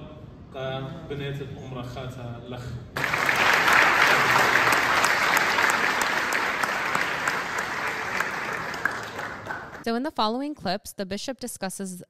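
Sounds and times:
audience applauding: 0:03.0 - 0:09.8.

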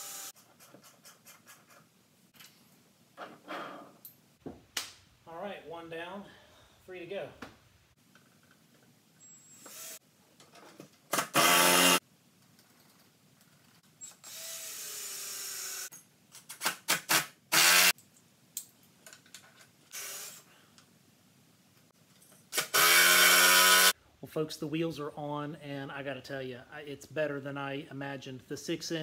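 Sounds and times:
cordless drill driving screws: 0:00.0 - 0:00.3, 0:09.5 - 0:10.0, 0:11.1 - 0:12.0, 0:14.0 - 0:15.9, 0:17.5 - 0:17.9, 0:19.9 - 0:20.4, 0:22.5 - 0:23.9.

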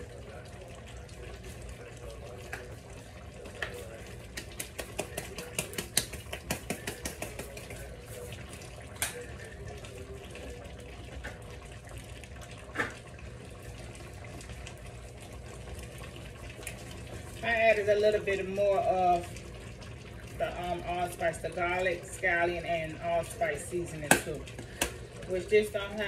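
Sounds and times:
pot bubbling: 0:00.0 - 0:26.0
shaker bottle tapping: 0:03.7 - 0:07.8.

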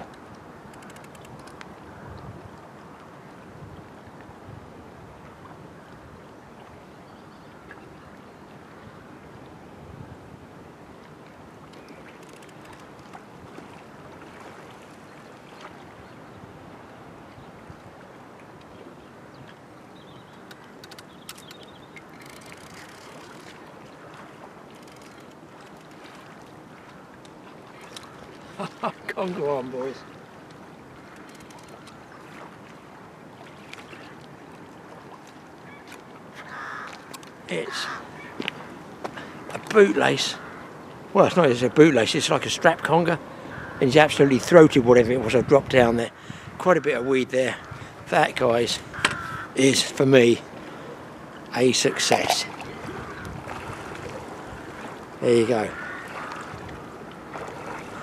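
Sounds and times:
light clicks and ticks: 0:00.0 - 0:01.7, 0:11.7 - 0:13.2, 0:20.3 - 0:23.6, 0:24.7 - 0:26.1, 0:30.5 - 0:32.0
water: 0:00.0 - 0:58.0
fishing reel winding: 0:00.8 - 0:01.5, 0:12.2 - 0:12.9, 0:22.2 - 0:23.5, 0:24.8 - 0:26.0, 0:31.2 - 0:31.9.

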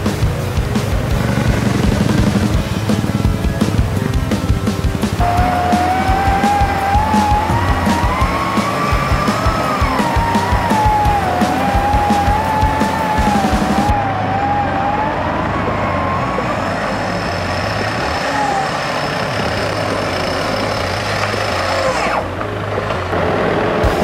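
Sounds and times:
engine running: 0:00.0 - 0:24.0
electric winch motor whining: 0:05.2 - 0:22.4.

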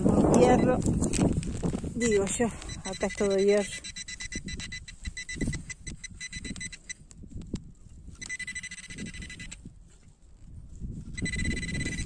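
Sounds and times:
wind rumble on microphone: 0:00.0 - 0:12.0
pinpointer beeps and tone: 0:00.3 - 0:00.9, 0:02.0 - 0:07.1, 0:08.2 - 0:09.6, 0:11.1 - 0:12.0.

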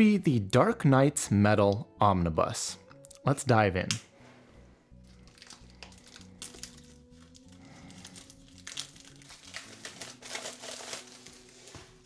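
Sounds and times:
quiet background music: 0:00.0 - 0:12.0
book pages rustling: 0:05.0 - 0:12.0.

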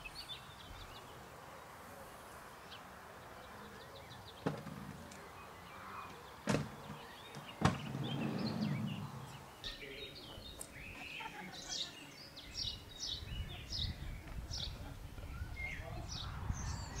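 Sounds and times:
bird chirps: 0:05.2 - 0:17.0
sharp knocks: 0:06.4 - 0:07.9.

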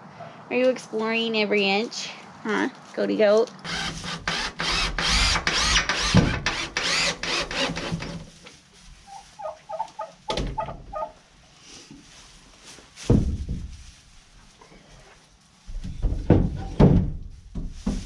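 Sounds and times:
cordless drill driving screws into wood: 0:03.7 - 0:08.1.

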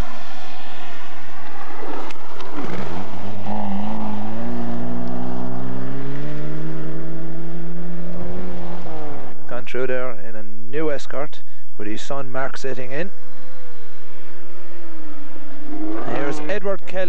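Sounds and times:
rally car passing at speed: 0:00.0 - 0:09.5, 0:13.1 - 0:16.9.

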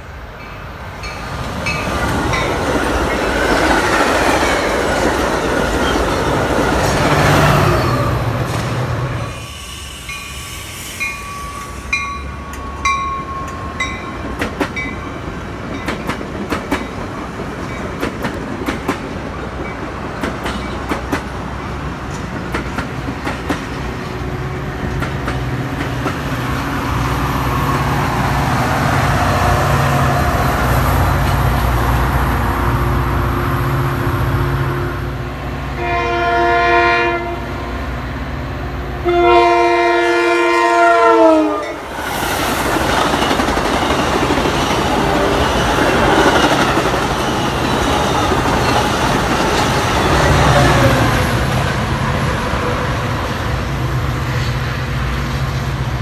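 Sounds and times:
diesel locomotive rumbling: 0:00.0 - 0:56.0
train wheels clicking over joints: 0:15.6 - 0:24.2, 0:41.9 - 0:51.8
train horn blasts: 0:35.7 - 0:37.7, 0:39.0 - 0:41.8.

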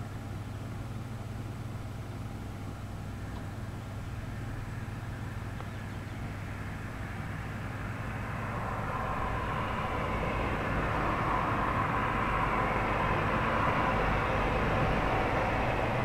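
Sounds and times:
low steady hum: 0:00.0 - 0:16.0
vehicle approaching: 0:03.3 - 0:16.0.

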